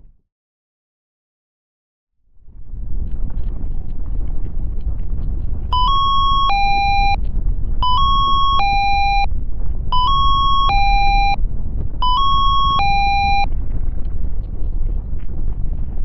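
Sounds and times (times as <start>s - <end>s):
steady low rumble: 2.3s - 16.0s
synthesized alert chime: 5.8s - 7.2s, 7.8s - 9.3s, 10.0s - 11.4s, 12.0s - 13.4s.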